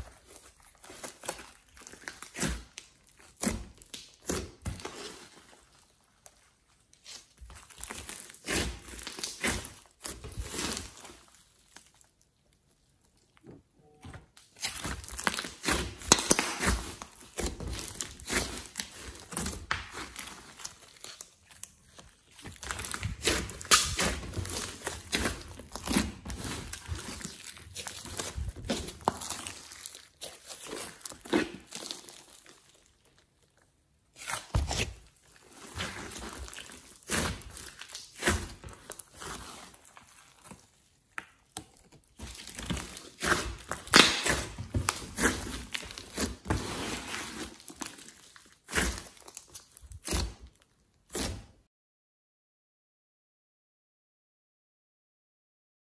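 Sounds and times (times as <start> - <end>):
slime crackling and popping: 14.5 - 51.3.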